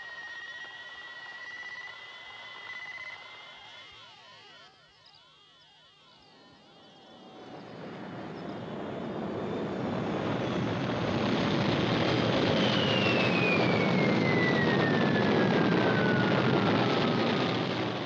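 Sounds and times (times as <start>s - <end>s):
rocket exhaust roar: 6.7s - 18.0s
high descending whistle: 12.0s - 18.0s.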